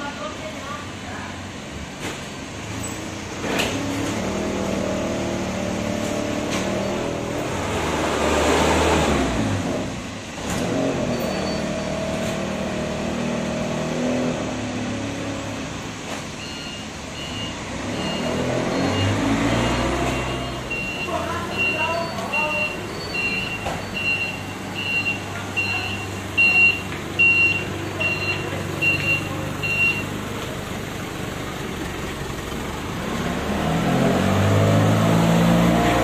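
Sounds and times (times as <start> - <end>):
forklift engine revving: 2.5 - 36.0
reversing beeper: 16.4 - 30.2.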